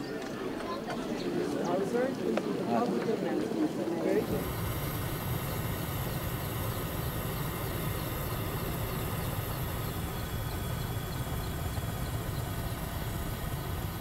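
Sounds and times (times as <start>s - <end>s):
helicopter engine and rotor: 4.1s - 14.0s.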